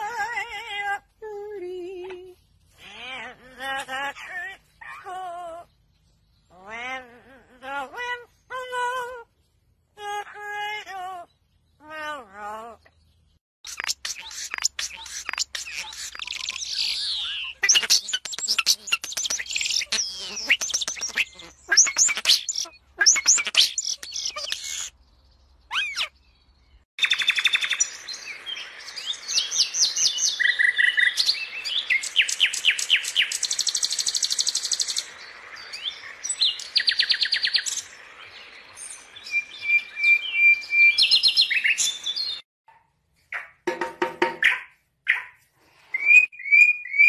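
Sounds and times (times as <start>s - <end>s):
nightingale singing trills: 12.8s - 42.4s, 46.0s - 47.0s
starling whistling and chattering: 13.6s - 25.0s.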